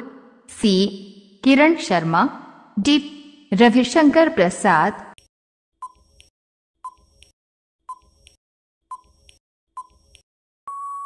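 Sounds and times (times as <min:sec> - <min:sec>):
countdown timer tick-tock clicks: 0:07.9 - 0:10.2.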